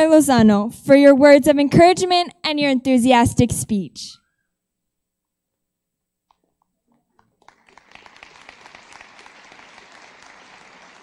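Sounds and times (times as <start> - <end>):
faint audience applause: 7.0 - 11.0.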